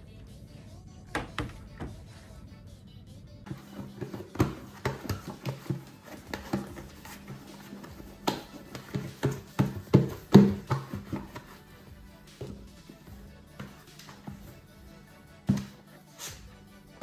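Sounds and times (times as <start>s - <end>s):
background music: 0.0s - 17.0s
dough thudding and slapping: 3.8s - 11.5s.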